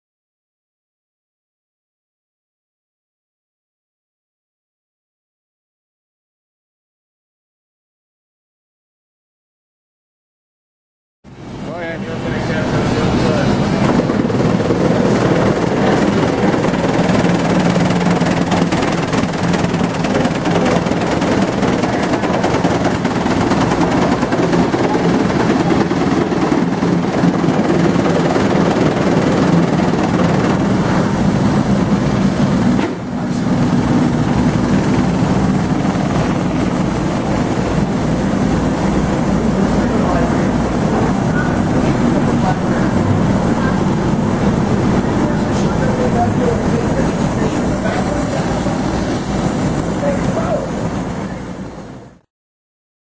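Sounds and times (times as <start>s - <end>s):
vibratory conveyor hum and rattle: 11.3s - 52.2s.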